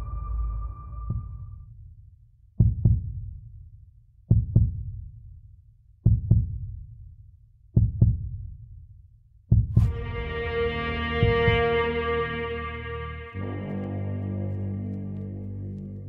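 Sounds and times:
deep heartbeat-like double thumps: 2.6 - 3.4, 4.3 - 5.1, 6.0 - 6.8, 7.8 - 8.6, 9.5 - 11.9.

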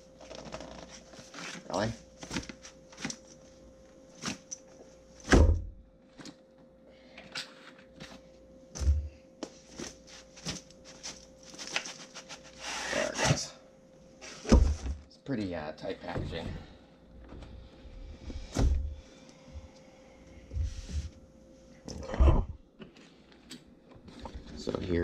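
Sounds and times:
faint steady hum: 0.0 - 25.0
heavy thumps: 8.8 - 9.2, 16.0 - 19.7.

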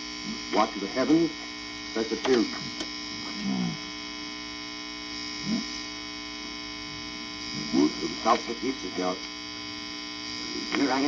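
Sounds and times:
mains hum: 0.0 - 11.0
unintelligible speech from record: 2.0 - 2.7, 10.5 - 11.0.

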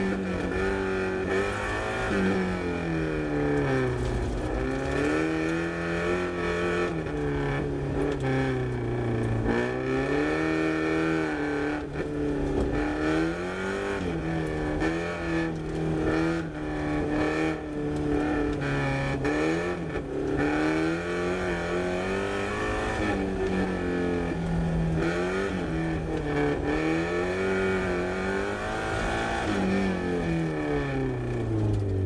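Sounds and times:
car engine revving inside cabin: 0.0 - 32.0.

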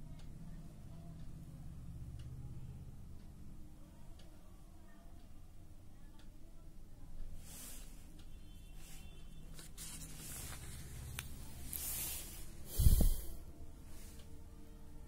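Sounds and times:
paper page rustling: 9.5 - 12.3.

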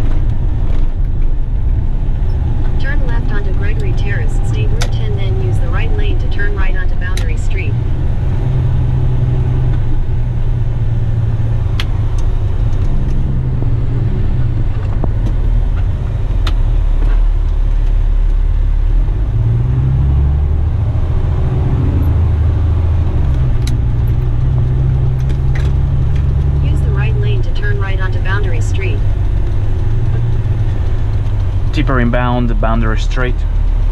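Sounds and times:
truck diesel engine droning: 0.0 - 33.9.

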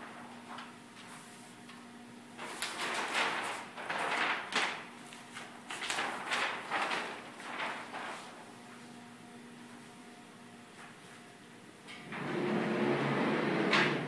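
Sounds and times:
faint steady hum: 0.0 - 13.8
cardstock sheets rustling and sliding: 2.4 - 8.5.

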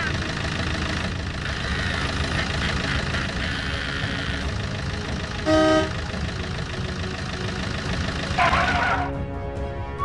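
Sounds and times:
cartoon car engine hum: 0.0 - 9.2
car horn toot: 5.4 - 6.0.

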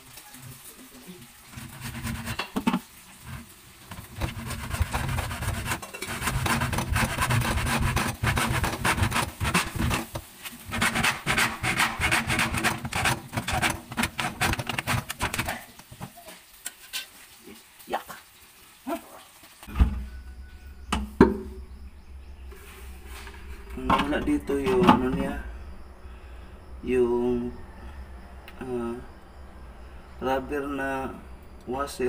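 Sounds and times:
hacksaw cutting plastic pipe: 3.9 - 15.5.

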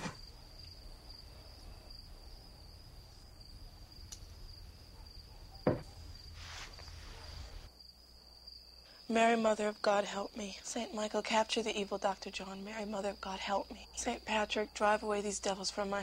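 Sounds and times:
crickets chirring: 0.0 - 16.0
short knock: 5.6 - 6.0
soft hiss: 6.2 - 7.7.

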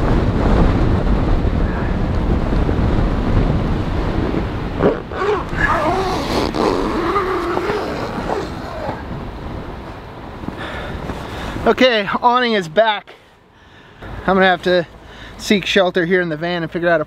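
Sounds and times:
wind buffeting microphone: 0.0 - 12.8.

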